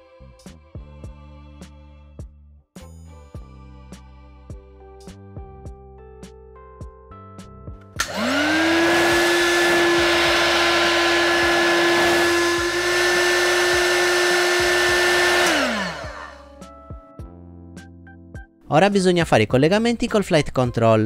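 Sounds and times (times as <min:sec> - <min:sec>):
heat gun fan motor whining: 0:08.0 - 0:16.4
rush of hot air: 0:08.0 - 0:16.4.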